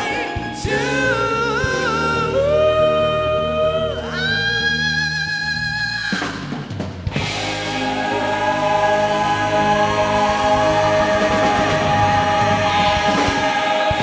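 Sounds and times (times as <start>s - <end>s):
vocal group singing: 0.0s - 5.6s, 7.1s - 14.0s
rock band playing: 5.5s - 14.0s.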